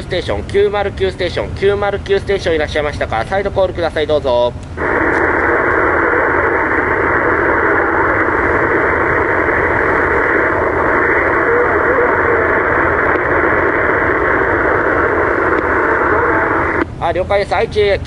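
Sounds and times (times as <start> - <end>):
radio static hiss: 0.0 - 18.0
faint distant radio voice: 4.8 - 16.8.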